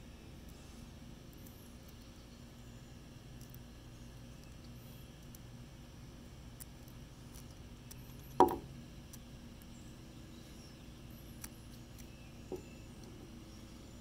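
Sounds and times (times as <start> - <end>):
soft knock: 8.4 - 8.6.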